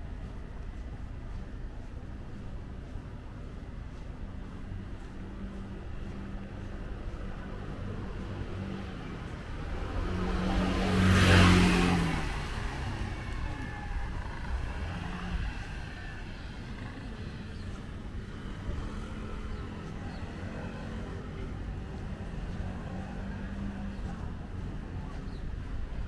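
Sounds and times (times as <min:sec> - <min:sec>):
vehicle passing by: 0:05.2 - 0:26.0.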